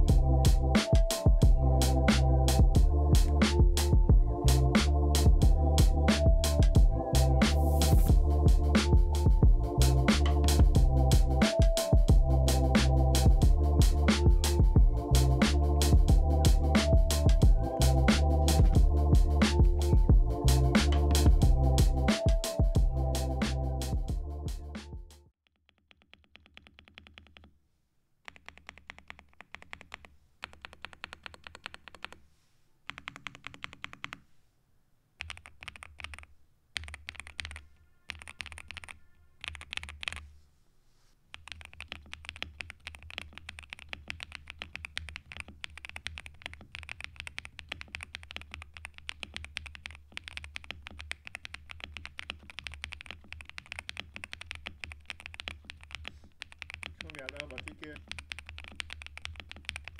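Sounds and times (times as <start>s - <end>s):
mechanical keyboard typing: 25.6s - 27.5s, 28.3s - 32.2s, 32.9s - 34.2s, 35.2s - 40.2s, 41.3s - 59.9s.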